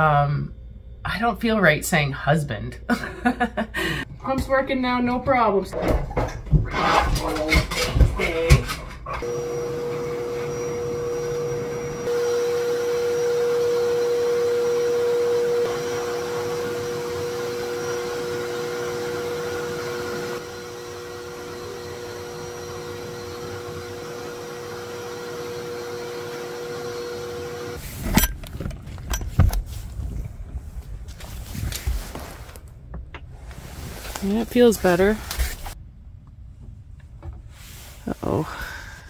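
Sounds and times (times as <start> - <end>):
shop vacuum motor whine: 9.2 - 27.8.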